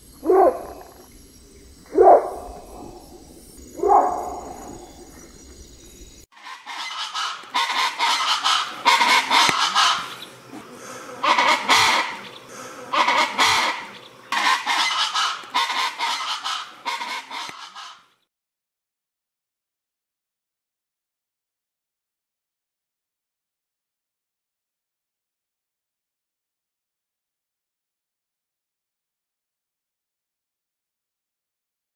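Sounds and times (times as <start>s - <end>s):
birds calling raucously: 0.0s - 18.1s.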